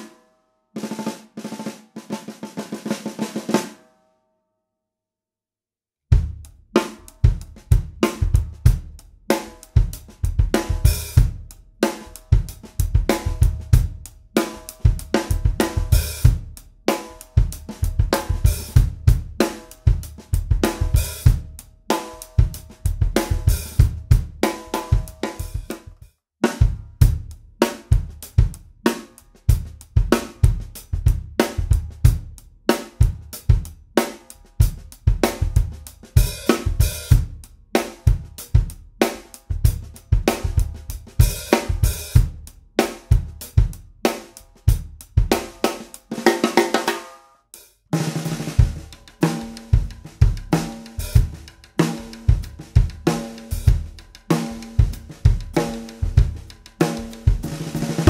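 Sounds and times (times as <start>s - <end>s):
snare drum: 0.8s - 3.8s, 6.2s - 47.2s, 48.0s - 58.0s
bass drum: 6.1s - 46.7s, 48.0s - 58.0s.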